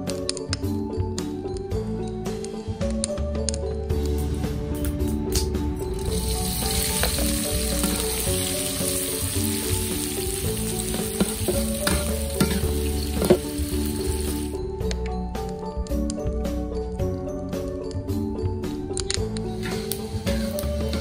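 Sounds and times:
vegetables sizzling in hot oil: 0:06.1 - 0:14.5, 0:19.6 - 0:21.0
metal spatula scraping wok: 0:10.9 - 0:13.6.

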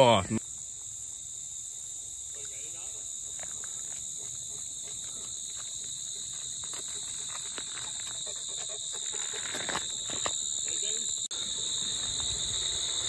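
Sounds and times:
insects droning: 0:00.0 - 0:13.0
dog panting: 0:03.2 - 0:10.0
paws scuffing on gravel: 0:03.3 - 0:13.0.

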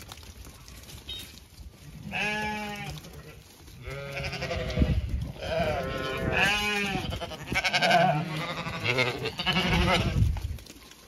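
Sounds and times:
sheep bleating: 0:02.0 - 0:10.2.

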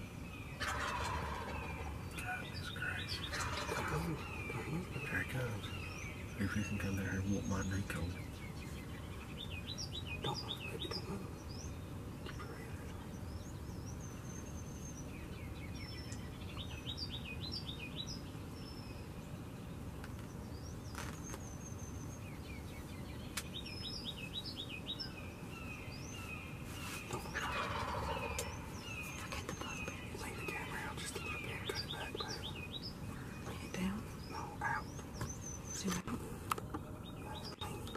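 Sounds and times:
songbirds singing: 0:00.0 - 0:37.9
turkey gobbling: 0:00.6 - 0:02.4, 0:03.2 - 0:04.6, 0:27.2 - 0:28.6.

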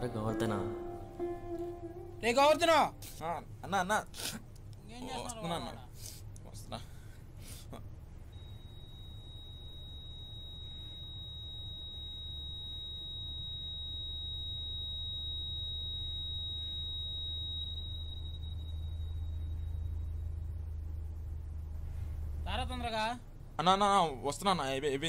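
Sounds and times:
high-pitched ringing tone: 0:00.0 - 0:03.4, 0:08.2 - 0:21.4
low rumble: 0:18.6 - 0:23.6.

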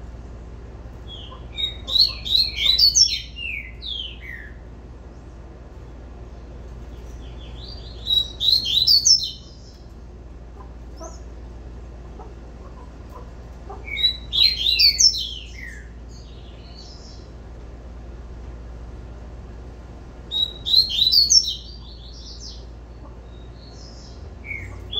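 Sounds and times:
soft bird chirps: 0:01.0 - 0:05.4, 0:06.8 - 0:10.0, 0:13.7 - 0:17.4, 0:20.3 - 0:24.9
bird singing high falling notes: 0:01.1 - 0:04.6, 0:07.4 - 0:09.7, 0:20.3 - 0:22.7.

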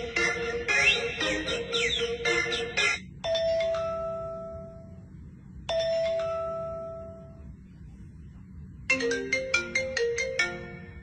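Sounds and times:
marimba-like ringtone melody: 0:00.0 - 0:04.8, 0:05.7 - 0:07.3, 0:08.9 - 0:11.0.

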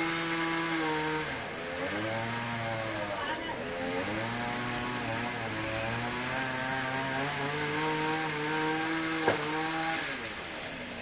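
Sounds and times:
chainsaw running: 0:00.0 - 0:11.0.

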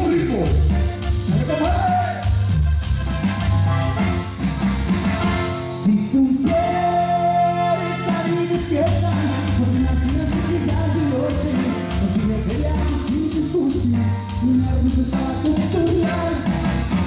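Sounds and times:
accordion: 0:00.0 - 0:17.0
band playing: 0:00.0 - 0:17.0
lead singer singing: 0:05.7 - 0:17.0.

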